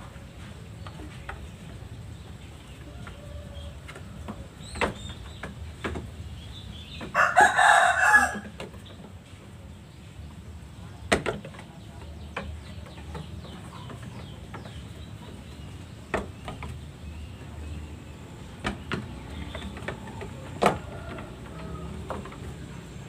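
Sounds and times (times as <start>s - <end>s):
lamb hooves knocking on bamboo floor: 11.0s - 23.0s.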